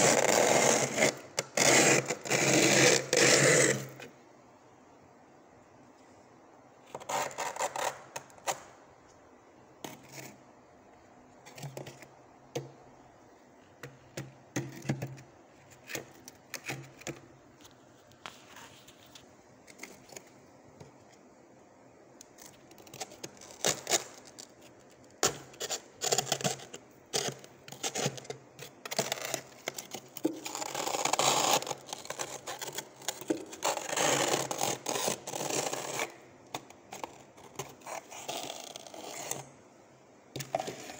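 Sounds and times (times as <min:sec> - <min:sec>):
plastic tub scraping frost: 0:00.0 - 0:04.1, 0:40.4 - 0:40.9.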